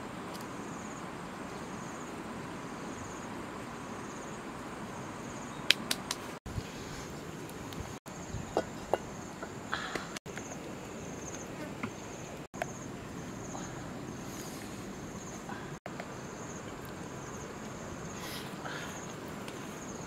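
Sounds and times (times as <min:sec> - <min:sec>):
insects trilling: 0:06.8 - 0:20.0
wok knocking on stones: 0:08.4 - 0:09.6.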